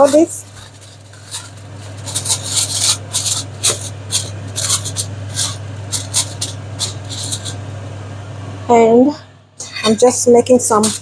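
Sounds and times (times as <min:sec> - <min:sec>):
aluminium foil crinkling: 0:00.0 - 0:07.6, 0:10.6 - 0:11.0.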